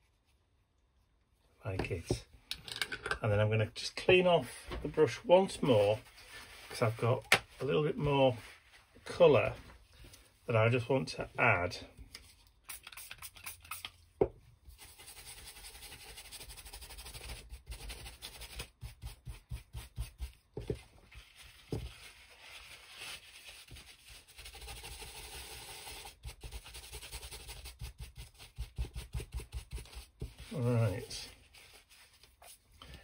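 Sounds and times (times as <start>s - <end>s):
paintbrush rubbing on paper towel: 5.5s - 7.1s, 7.7s - 9.6s, 14.7s - 32.7s.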